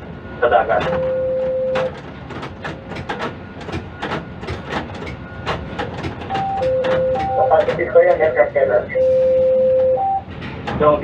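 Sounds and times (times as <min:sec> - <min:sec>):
crane machinery clicking and rattling: 0:01.7 - 0:08.4, 0:10.2 - 0:11.0.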